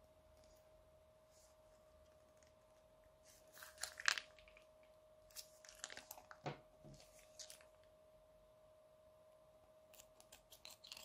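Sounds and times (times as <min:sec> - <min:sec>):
slime crackling and popping: 0:03.6 - 0:04.7, 0:05.3 - 0:06.4.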